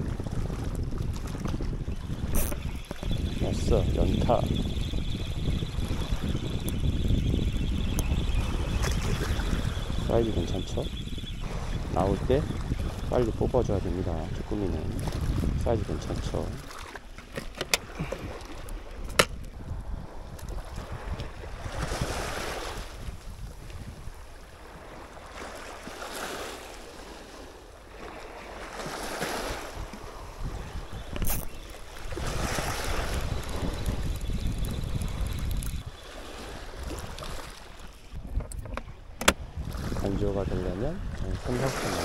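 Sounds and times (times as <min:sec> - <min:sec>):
wind buffeting microphone: 0:00.0 - 0:26.4, 0:28.0 - 0:42.0
small waves on stony shore: 0:11.4 - 0:38.2, 0:40.9 - 0:42.0.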